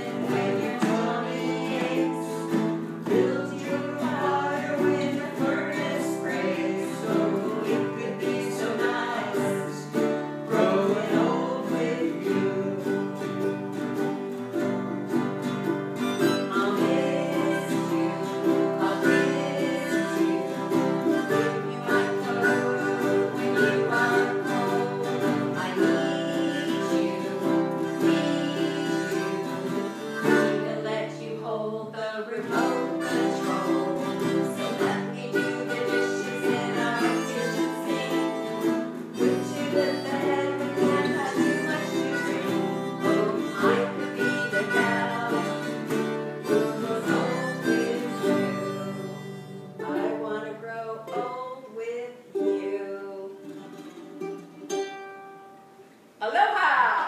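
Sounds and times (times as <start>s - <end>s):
woman singing: 0.0s - 13.6s, 16.2s - 53.8s, 56.2s - 57.0s
ukulele strummed: 0.0s - 56.1s
acoustic guitars strummed: 0.0s - 57.0s
harmonica held notes: 15.9s - 31.0s, 32.5s - 49.8s.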